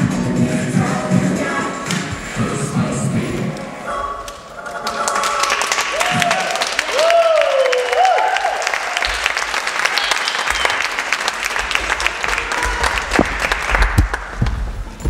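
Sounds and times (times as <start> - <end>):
audience applauding: 4.7 - 14.4.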